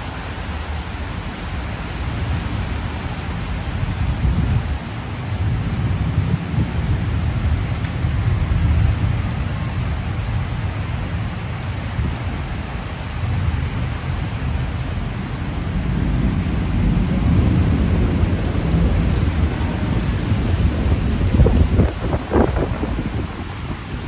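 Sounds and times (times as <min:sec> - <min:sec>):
heavy rain on metal roofs: 0:00.0 - 0:24.0
rolling thunder rumble: 0:03.6 - 0:24.0.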